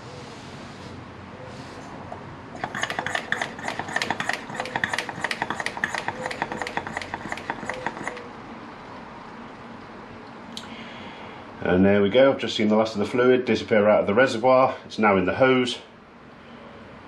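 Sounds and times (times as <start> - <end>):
brake bleeder pump clicks: 2.6 - 8.3.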